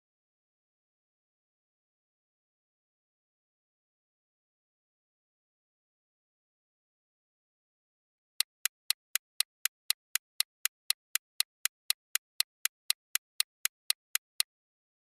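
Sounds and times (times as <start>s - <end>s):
clock-like timer ticks: 8.4s - 14.5s.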